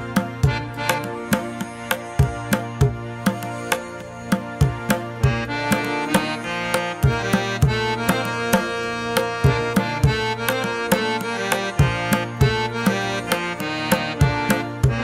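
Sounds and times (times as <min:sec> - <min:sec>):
drum strikes: 0:00.0 - 0:06.4
sustained melodic tones: 0:00.0 - 0:15.0.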